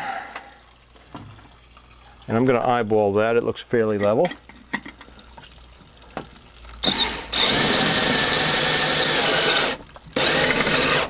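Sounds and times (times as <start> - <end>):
cordless drill driving screw: 6.8 - 11.0.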